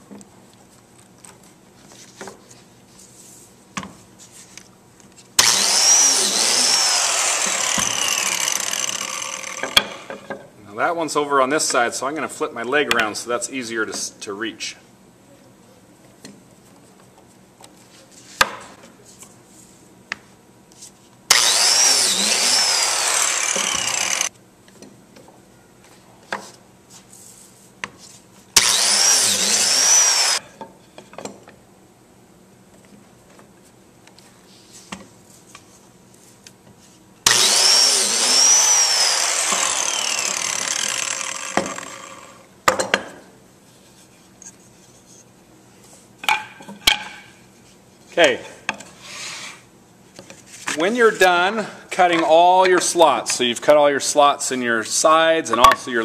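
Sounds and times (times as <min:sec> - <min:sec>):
biscuit joiner motor whine: 0:05.4 - 0:10.1, 0:21.3 - 0:24.3, 0:28.6 - 0:30.4, 0:37.3 - 0:42.5.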